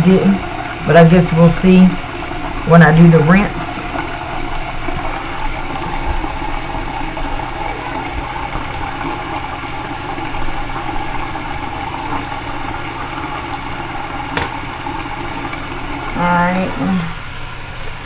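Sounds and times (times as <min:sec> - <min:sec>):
tap water running into sink: 0:00.0 - 0:16.8.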